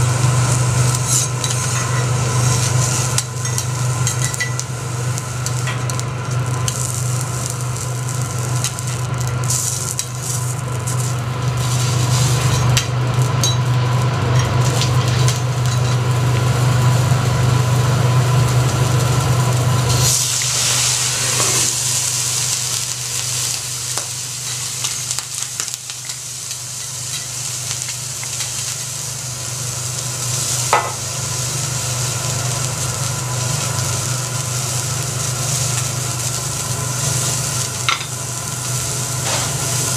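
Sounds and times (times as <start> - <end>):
loud hiss of steam: 0.0 - 3.2, 6.4 - 12.5, 19.8 - 39.9
prawn sizzling on griddle: 0.0 - 39.9
steady low hum: 0.0 - 39.9.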